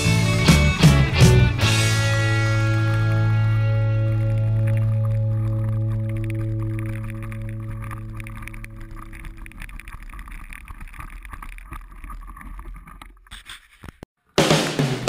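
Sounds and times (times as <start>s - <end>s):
held music chord: 0.0s - 9.5s.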